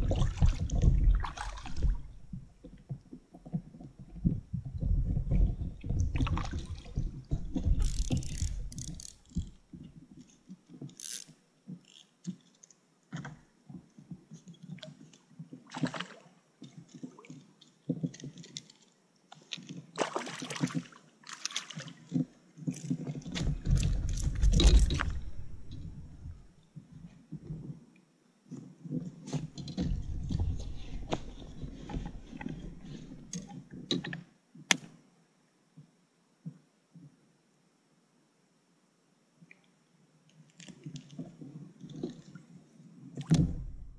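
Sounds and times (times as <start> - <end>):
water sloshing: 0.0 - 3.2, 3.8 - 9.8, 19.4 - 26.5
knocks and scrapes: 3.4 - 9.8, 22.7 - 26.5, 29.2 - 34.2
sharp clicks and rustles: 7.4 - 9.6.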